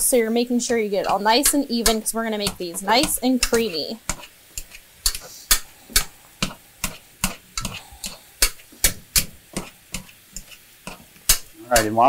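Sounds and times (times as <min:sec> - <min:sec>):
faint sizzling pan sauce: 0:00.0 - 0:12.0
potato masher knocking on pot: 0:01.0 - 0:04.3, 0:05.9 - 0:12.0.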